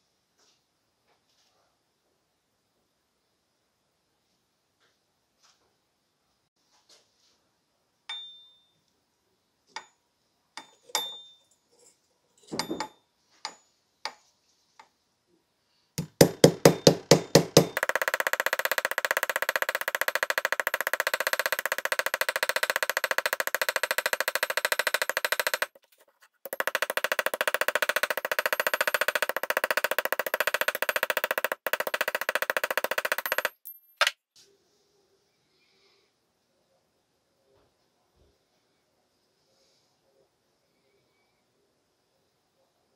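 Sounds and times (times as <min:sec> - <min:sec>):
hammer tapping on metal: 0:16.0 - 0:25.8, 0:26.5 - 0:34.1.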